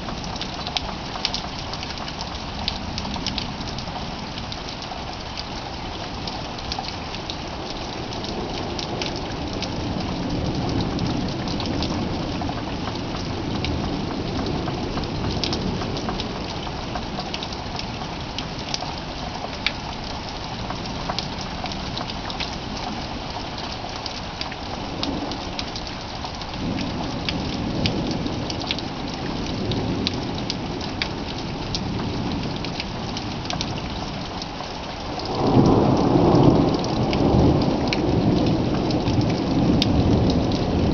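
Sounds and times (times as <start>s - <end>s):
raindrops ticking on a surface: 0.0s - 40.9s
steady rain: 0.0s - 40.9s
thunder rumbling: 35.0s - 40.9s.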